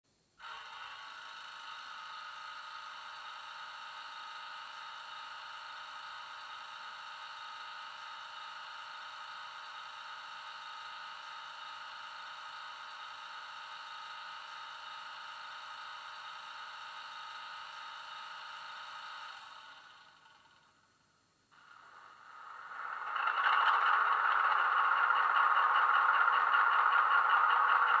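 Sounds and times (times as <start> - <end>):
diesel locomotive engine idling: 21.6 - 28.0.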